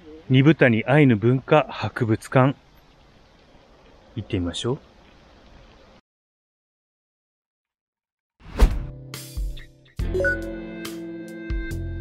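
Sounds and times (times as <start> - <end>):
whoosh into deep thud: 8.4 - 9.0
background music: 8.7 - 12.0.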